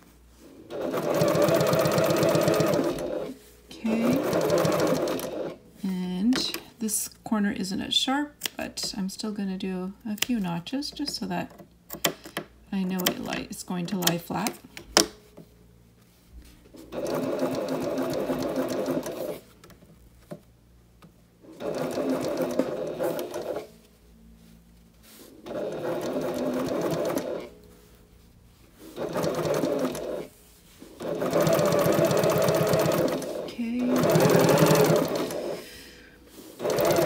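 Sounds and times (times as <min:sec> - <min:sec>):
sewing machine running: 0:00.6 - 0:05.6, 0:16.9 - 0:19.4, 0:21.5 - 0:23.7, 0:25.4 - 0:27.5, 0:29.0 - 0:30.3, 0:31.0 - 0:35.6, 0:36.5 - 0:37.0.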